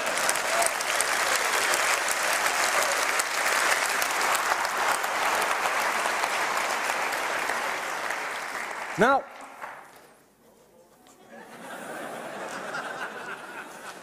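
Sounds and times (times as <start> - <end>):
audience applauding: 0.0 - 10.1.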